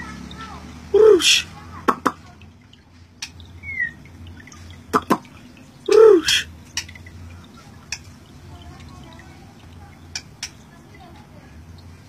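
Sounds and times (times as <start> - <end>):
bird call notes and clicks: 3.2 - 4.3, 5.0 - 8.3, 10.0 - 10.8.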